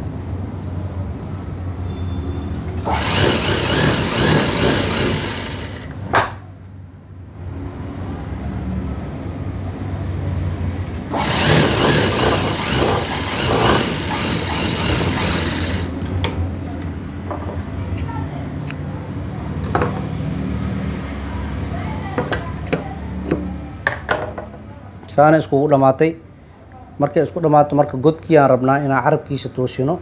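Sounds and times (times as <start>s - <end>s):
sewing machine stitching: 2.8s - 6.0s, 11.1s - 16.0s.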